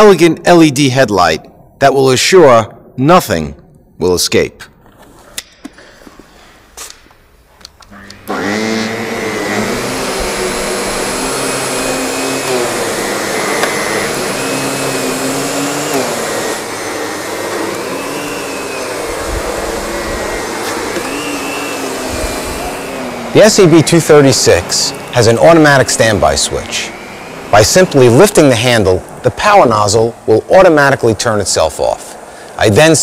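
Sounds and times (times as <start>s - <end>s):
vacuum cleaner running on carpet: 8.1s - 33.0s.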